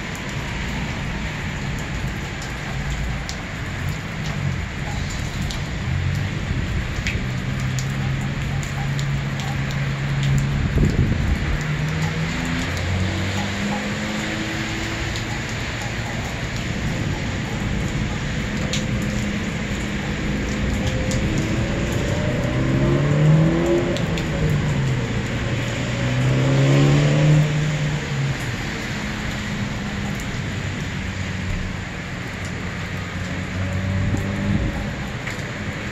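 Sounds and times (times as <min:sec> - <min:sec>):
vehicle engine accelerating: 0:19.0 - 0:30.2, 0:33.2 - 0:35.8.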